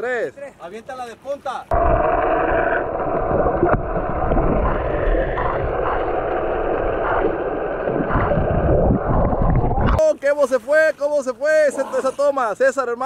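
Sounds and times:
muffled underwater rushing water: 0:01.7 - 0:10.0.

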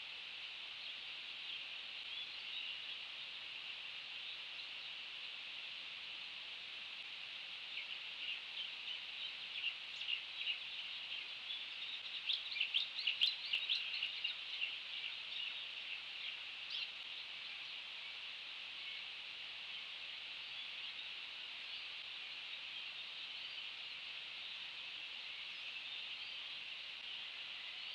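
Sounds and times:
high-pitched background hiss: 0:00.0 - 0:27.9
birds chirping: 0:07.8 - 0:17.8.

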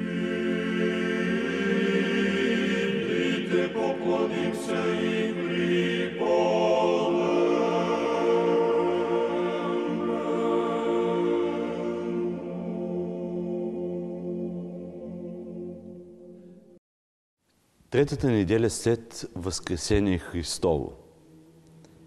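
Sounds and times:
choir chanting long notes: 0:00.0 - 0:16.8.

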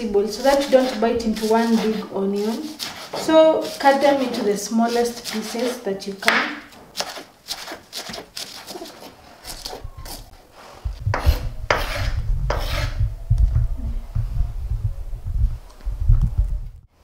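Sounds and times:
knife blade scraping board: 0:00.4 - 0:05.8, 0:07.0 - 0:10.3, 0:11.1 - 0:13.0
knife chopping on wooden board: 0:05.2 - 0:09.8, 0:11.1 - 0:12.8.

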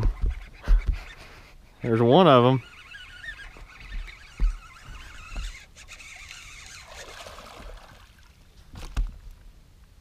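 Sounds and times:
fish thrashing and splashing: 0:02.8 - 0:08.4.

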